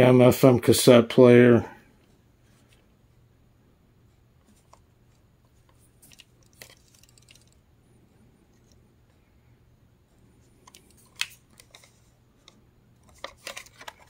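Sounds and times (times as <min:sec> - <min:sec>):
faint plastic clicks and rubs: 0:04.1 - 0:07.6, 0:08.5 - 0:09.3, 0:10.1 - 0:14.0.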